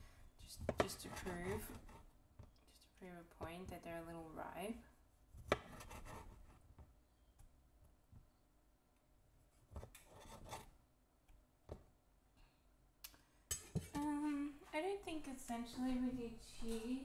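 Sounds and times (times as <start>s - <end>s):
knife cutting on wooden board: 5.4s - 6.5s, 9.8s - 10.7s.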